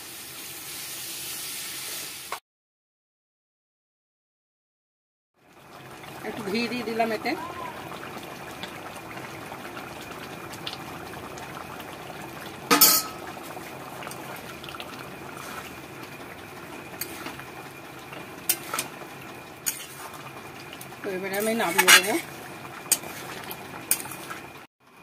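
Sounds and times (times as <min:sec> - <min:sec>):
curry bubbling: 0:05.4 - 0:24.7
metal spoon clinking on pan: 0:12.7 - 0:13.2.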